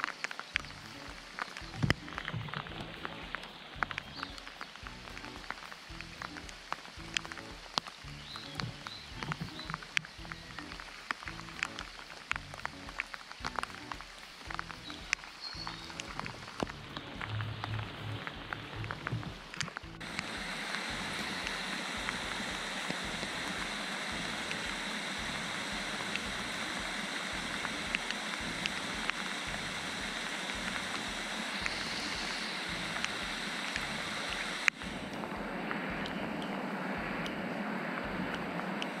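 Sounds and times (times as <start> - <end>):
heavy rain on water: 0.0 - 39.0.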